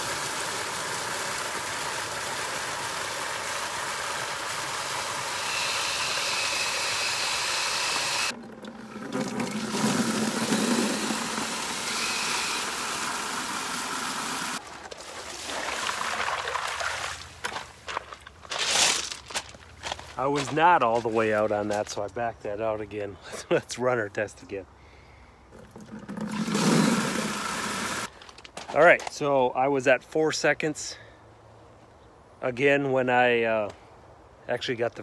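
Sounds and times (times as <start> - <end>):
water pouring into plastic bucket: 8.3 - 17.2, 25.5 - 28.1
handling noises: 28.1 - 29.2.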